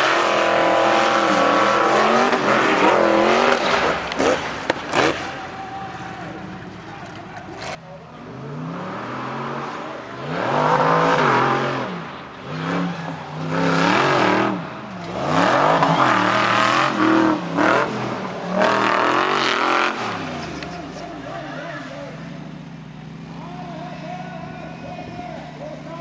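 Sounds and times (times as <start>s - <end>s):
racing engines revving: 0.0s - 26.0s.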